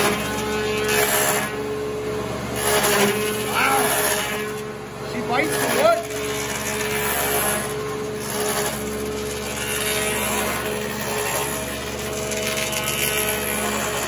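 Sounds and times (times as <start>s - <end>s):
cutter heads shaving wood: 0.0s - 14.0s
dust extractor running: 0.0s - 14.0s
lathe motors humming: 0.0s - 14.0s.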